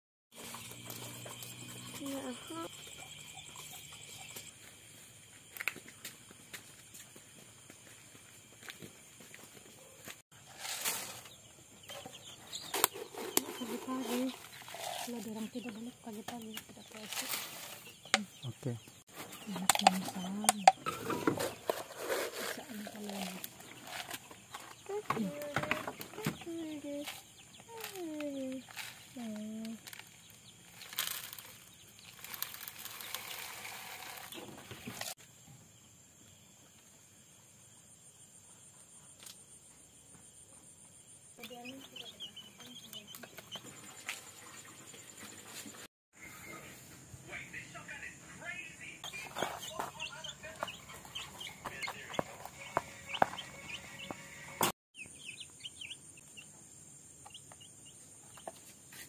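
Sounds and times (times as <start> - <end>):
cricket trill: 0.3 - 45.9, 47.3 - 59.0
plastic bag rustling: 30.6 - 35.2
chicks pecking on cardboard: 41.4 - 44.0, 49.1 - 53.9
chicks peeping: 41.4 - 44.0, 49.0 - 56.6.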